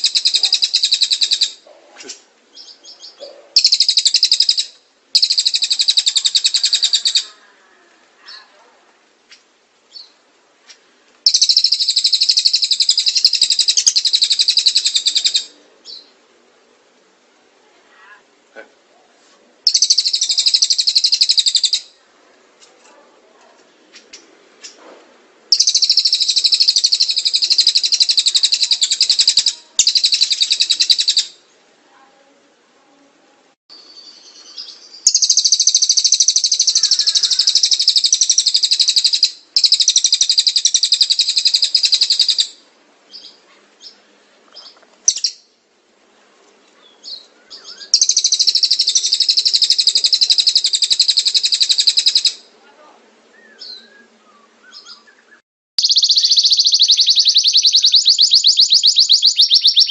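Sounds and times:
songbird trilling: 0.0s - 7.4s, 11.2s - 16.1s, 19.6s - 22.0s, 25.5s - 31.4s, 33.9s - 44.0s, 44.6s - 45.5s, 47.0s - 52.5s, 53.3s - 59.9s
short bird chirps: 53.4s - 59.9s.

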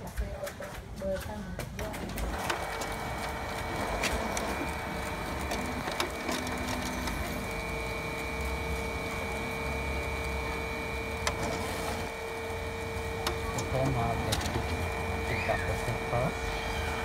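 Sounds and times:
laser printer printing: 0.1s - 17.0s.

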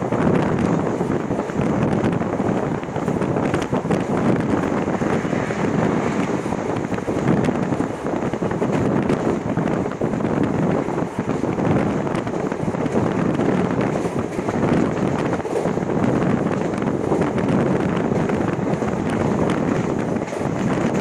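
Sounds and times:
train running noise: 0.0s - 21.0s
wind rushing over microphone: 0.0s - 21.0s.

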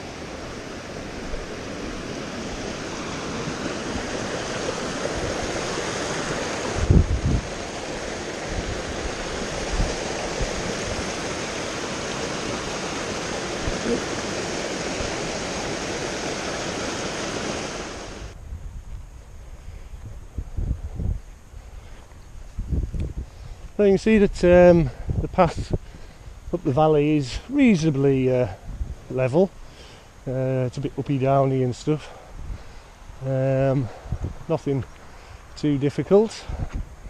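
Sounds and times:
stream rushing over rocks: 0.0s - 18.4s.

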